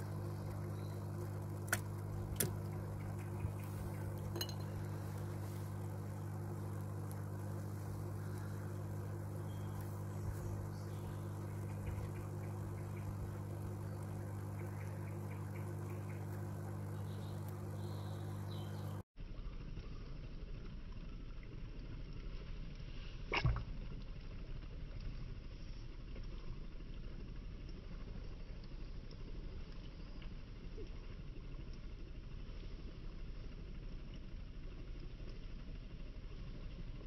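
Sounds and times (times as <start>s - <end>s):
air pump humming: 0.0s - 19.0s
light clinks: 4.3s - 4.8s.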